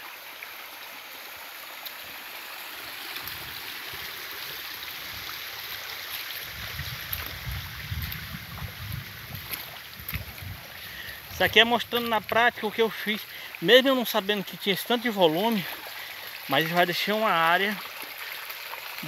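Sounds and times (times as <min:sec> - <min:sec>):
water rushing over ground: 0:00.0 - 0:19.0.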